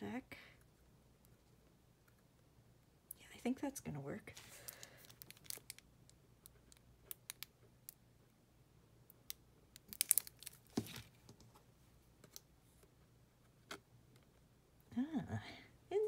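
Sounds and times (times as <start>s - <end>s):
paper crinkling: 4.3s - 5.8s, 9.9s - 11.4s.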